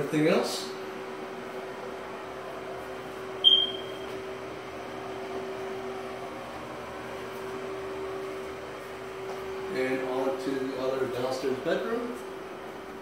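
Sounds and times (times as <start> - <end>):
low electrical hum: 0.0 - 13.0
short high-pitched beep: 3.4 - 4.1.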